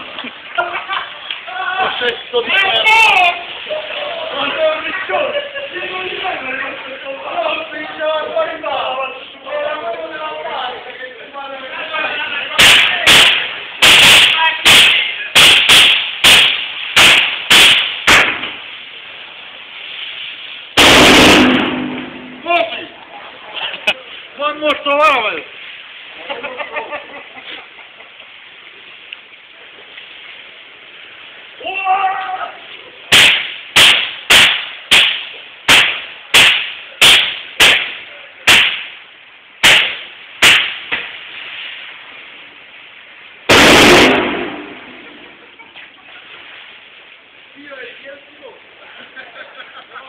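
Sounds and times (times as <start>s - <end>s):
firecracker bangs: 12.5s - 18.8s, 20.7s - 22.7s, 33.1s - 39.0s, 39.6s - 41.8s, 43.5s - 45.5s.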